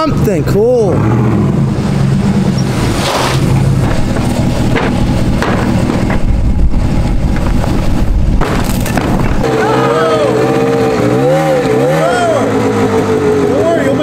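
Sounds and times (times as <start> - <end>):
pickup truck engine running: 0.0 - 10.8
knocks and thumps: 3.5 - 6.4, 7.3 - 9.4.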